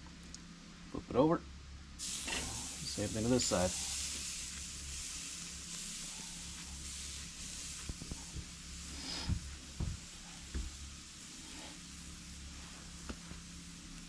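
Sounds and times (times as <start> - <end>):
steak sizzling on grill: 2.0 - 14.0.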